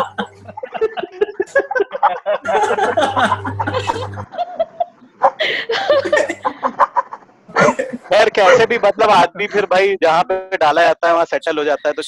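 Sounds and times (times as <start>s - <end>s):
audience laughing: 0.0s - 9.6s.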